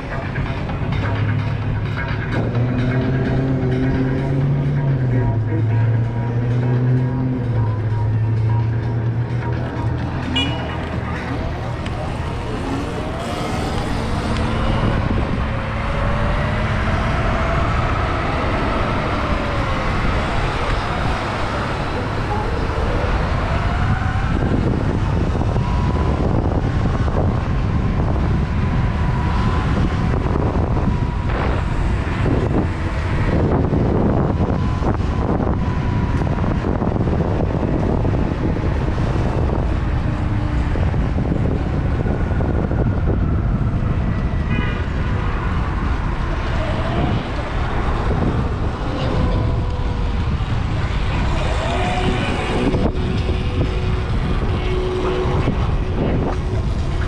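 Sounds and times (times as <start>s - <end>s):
wind buffeting microphone: 11.3s - 57.0s.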